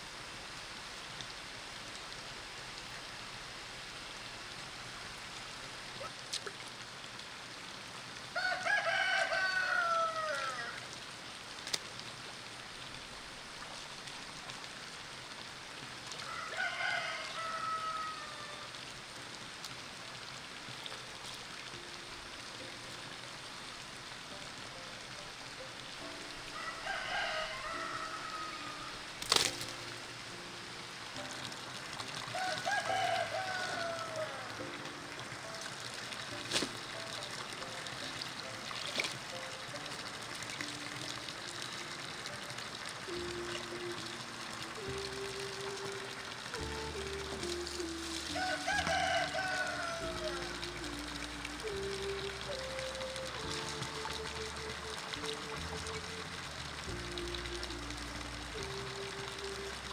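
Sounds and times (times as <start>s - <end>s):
steady background hiss: 0.0s - 59.9s
rooster crowing: 8.4s - 10.9s, 16.2s - 18.7s, 26.6s - 29.1s, 32.3s - 34.5s, 48.0s - 50.5s.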